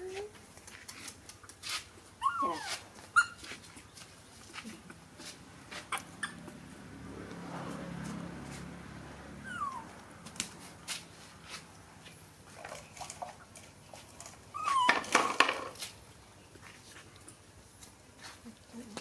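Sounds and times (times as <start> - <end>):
young animal squeaking: 2.2 - 3.4, 5.9 - 6.6, 9.4 - 9.9, 14.5 - 15.1.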